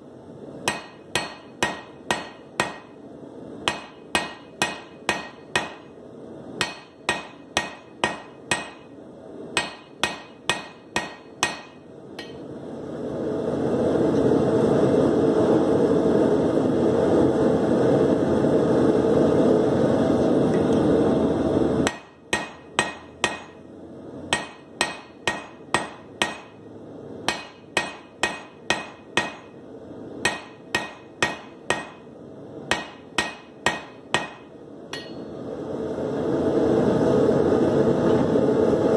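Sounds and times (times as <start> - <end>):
hammer ringing on anvil: 0.7 - 3.0, 3.7 - 5.9, 6.6 - 8.9, 9.6 - 12.5, 21.9 - 23.6, 24.3 - 26.6, 27.3 - 29.6, 30.2 - 32.0, 32.7 - 35.4.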